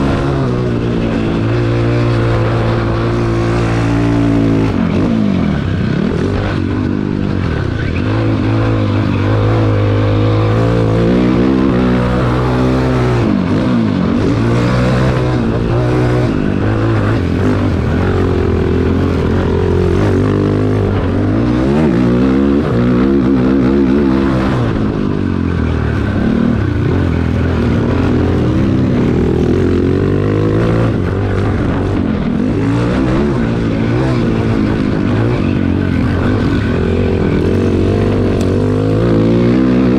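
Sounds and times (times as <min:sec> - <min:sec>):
quad engine revving: 0:00.0 - 0:39.9.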